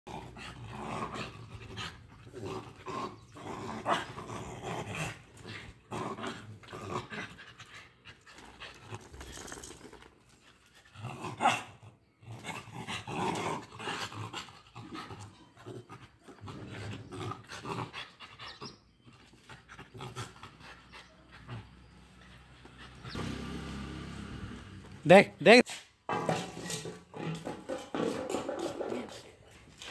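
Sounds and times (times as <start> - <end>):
dogs growling and snapping: 0.1 - 9.8, 12.3 - 17.9, 26.6 - 29.9
dog panting: 20.4 - 23.2.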